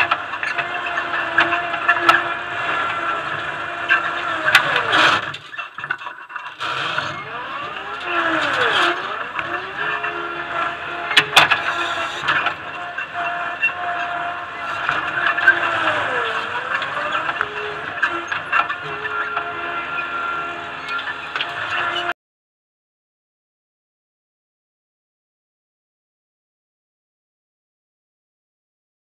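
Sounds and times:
loader engine and hydraulics: 0:00.0 - 0:22.2.

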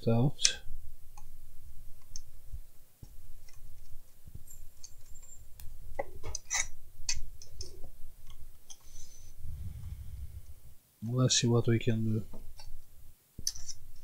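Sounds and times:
low handling rumble: 0:09.4 - 0:10.8.

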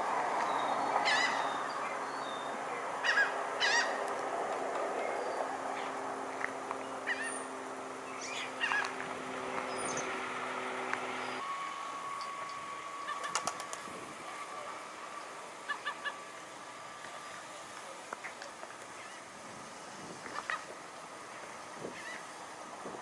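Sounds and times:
steady low hum: 0:00.0 - 0:23.0
faint steady tone: 0:09.6 - 0:23.0.

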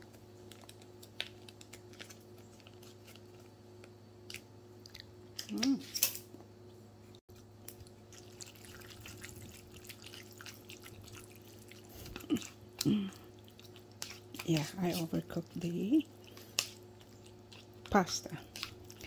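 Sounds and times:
low steady hum: 0:00.0 - 0:19.0
fork stirring macaroni: 0:13.2 - 0:19.0.

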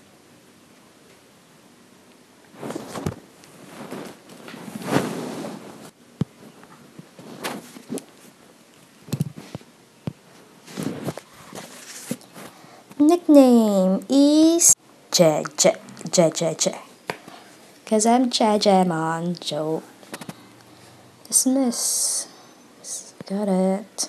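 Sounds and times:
handling rustles and thumps: 0:02.6 - 0:08.4, 0:09.0 - 0:12.6.

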